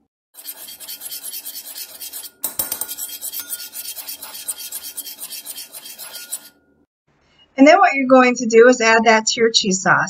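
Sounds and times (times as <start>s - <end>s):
metal spoon scraping a bowl: 0.4s - 6.7s.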